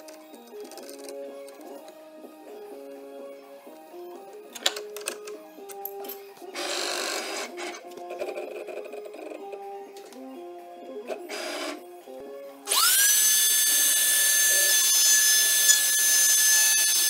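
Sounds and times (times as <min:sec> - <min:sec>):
faint background music: 0:00.0 - 0:17.0
router spindle motor whine: 0:12.7 - 0:17.0.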